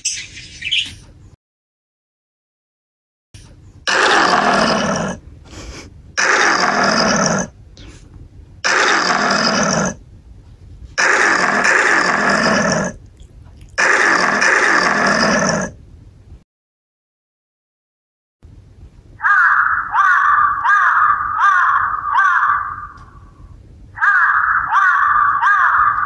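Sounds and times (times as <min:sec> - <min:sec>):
wild beast roaring: 0:03.9 - 0:05.2, 0:06.2 - 0:07.6, 0:08.6 - 0:10.0, 0:11.0 - 0:13.0, 0:13.8 - 0:15.8.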